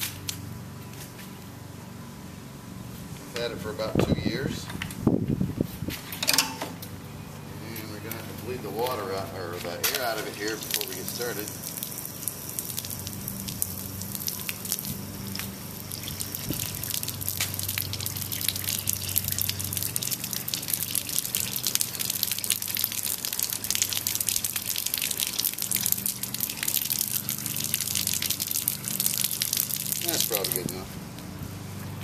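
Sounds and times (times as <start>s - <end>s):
water splattering on concrete: 7.8s - 31.3s.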